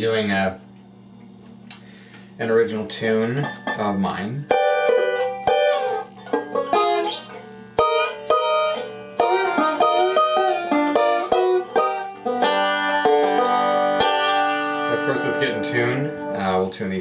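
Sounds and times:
banjo plucked notes: 3.3 - 16.6.

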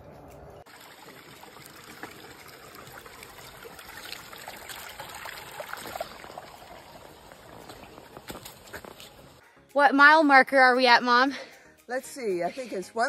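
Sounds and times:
water trickling and bubbling: 0.7 - 9.4.

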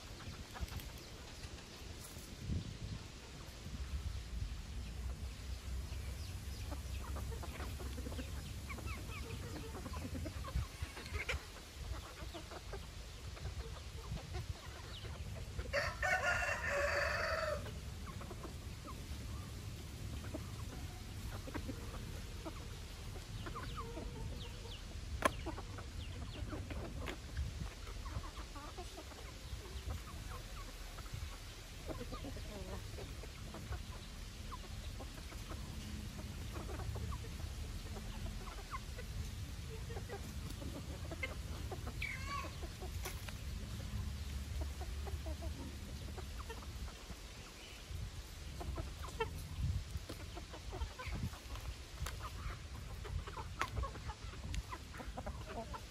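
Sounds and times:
chickens clucking: 0.0 - 55.9
rooster crowing: 15.7 - 17.7.

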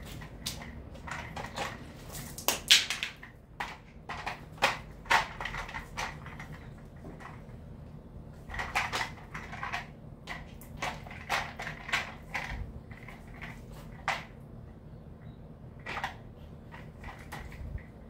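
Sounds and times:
plastic brush attachment clattering: 8.4 - 14.4.

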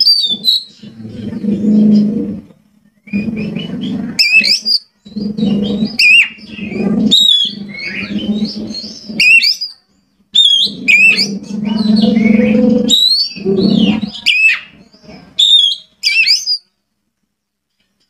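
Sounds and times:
songbird singing whistles: 0.0 - 0.8, 2.9 - 4.9, 5.7 - 16.7.

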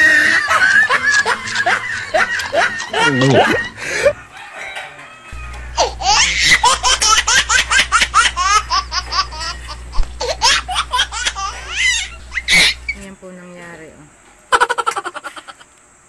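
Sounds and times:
person laughing hard: 0.0 - 4.2, 5.4 - 12.9, 14.5 - 15.7
low steady hum: 5.3 - 14.6.

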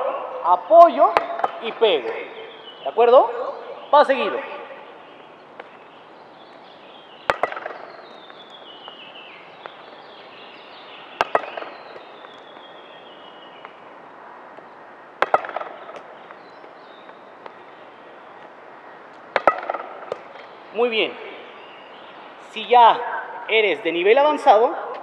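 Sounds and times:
tennis racket hitting ball: 7.2 - 9.0, 11.2 - 12.7, 15.2 - 16.4, 19.3 - 20.5.

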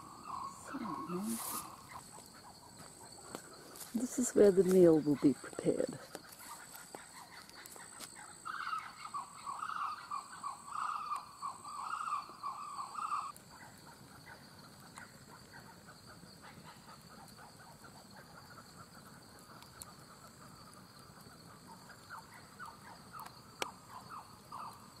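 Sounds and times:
fire popping: 0.0 - 9.4, 10.0 - 25.0
frog calling: 0.0 - 14.4, 22.1 - 25.0
campfire crackling: 0.0 - 25.0
high insect drone: 0.0 - 25.0
pulsing cricket trill: 0.0 - 25.0.

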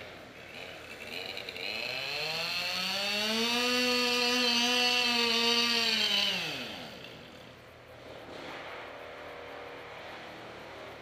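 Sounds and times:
chainsaw revving: 0.0 - 7.6.

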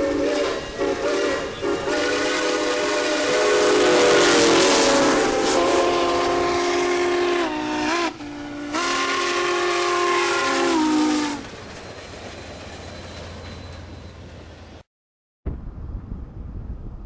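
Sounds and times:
steam locomotive chime whistle: 0.0 - 11.5
passing train rumble: 0.0 - 14.9.

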